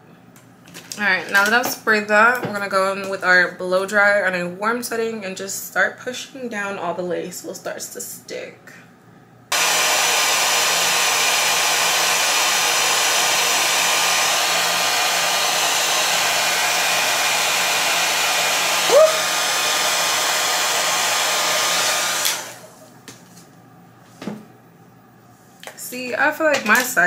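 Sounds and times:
blow dryer running: 9.5 - 22.9.

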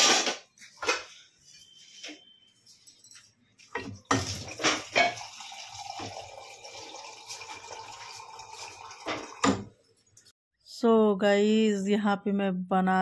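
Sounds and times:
cup knocking and clinking: 3.7 - 6.4
tap water running into a cup: 4.0 - 9.7.

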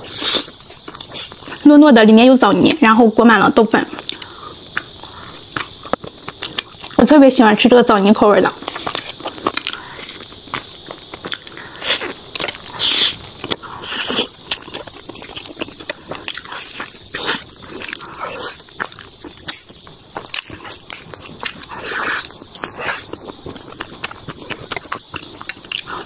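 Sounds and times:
chewing soft rice snacks: 0.0 - 26.0
mouth clicks and smacks: 3.9 - 7.0.

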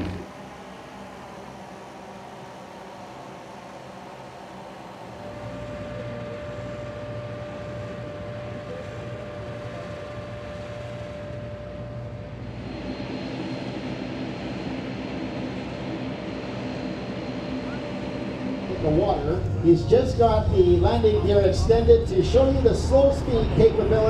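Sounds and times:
propeller aircraft engine: 0.0 - 24.0.

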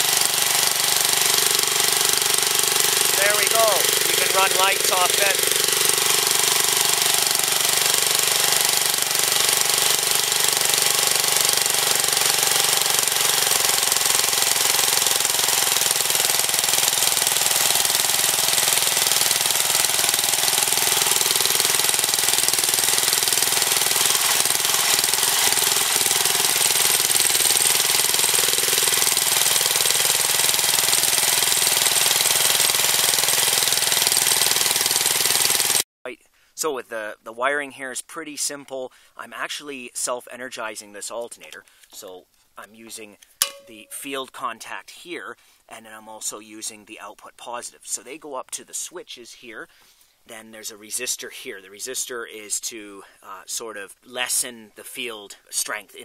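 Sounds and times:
single-cylinder engine running: 0.0 - 35.8.

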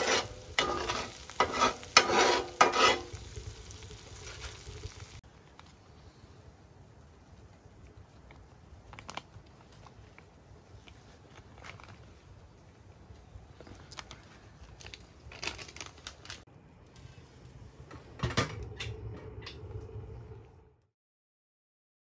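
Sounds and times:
wood stove fire crackling: 0.0 - 20.9
plastic snack bag crinkling: 8.2 - 12.5, 13.5 - 16.5.

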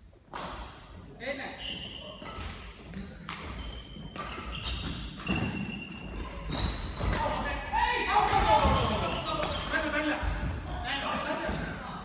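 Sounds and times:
shoes squeaking on court floor: 1.5 - 7.6, 8.6 - 10.6
racket hitting shuttlecock: 2.2 - 7.4.

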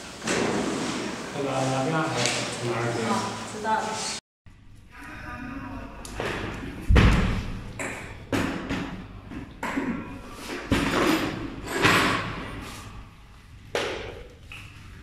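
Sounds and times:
echoing thuds and knocks: 6.3 - 10.0.

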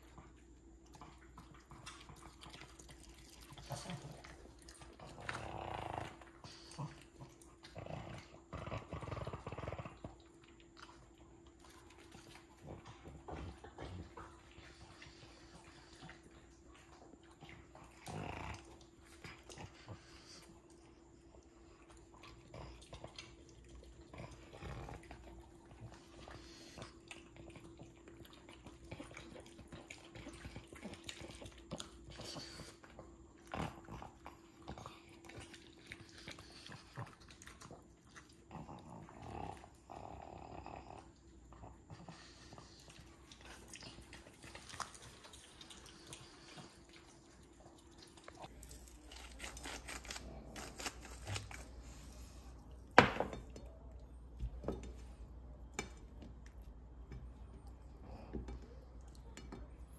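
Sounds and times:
dog crunching dry kibble: 47.6 - 52.2.

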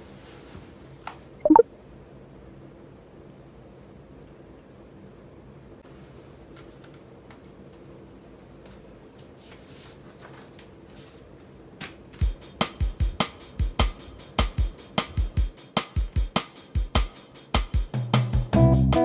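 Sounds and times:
paper rustling: 9.5 - 11.2
music with steady drum beat: 12.2 - 19.0.

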